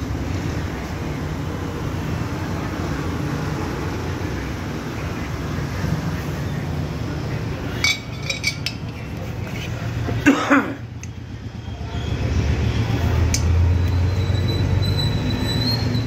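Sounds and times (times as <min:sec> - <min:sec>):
road traffic rumble: 0:00.0 - 0:16.0
short metallic clinks: 0:07.8 - 0:08.9.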